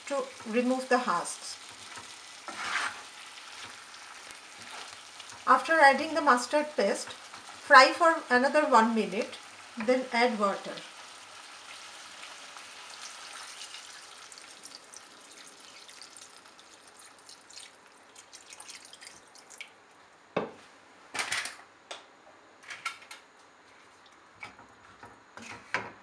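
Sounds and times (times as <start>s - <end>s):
meat sizzling in a pan: 0.0s - 17.5s
water pouring: 11.6s - 19.8s.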